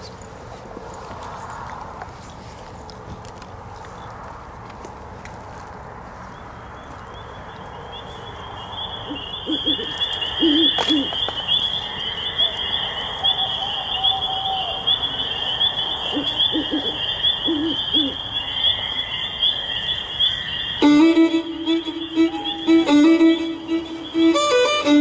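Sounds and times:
crickets chirping: 6.4s - 25.0s
owl hooting: 7.1s - 25.0s.

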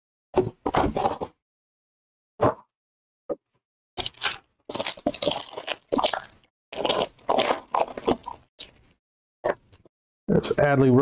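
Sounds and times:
plastic wrapper crinkling and tearing: 4.0s - 8.8s.

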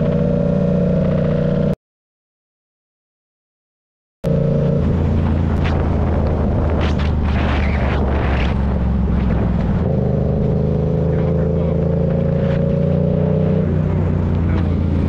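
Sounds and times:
motorcycle engine cruising: 0.0s - 1.8s, 4.3s - 15.0s
wind rushing over microphone: 4.6s - 15.0s.

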